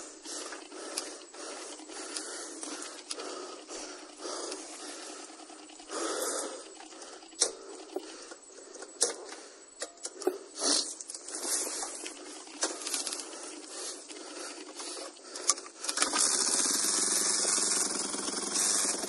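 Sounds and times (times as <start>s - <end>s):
motorcycle engine running: 16.0s - 19.0s.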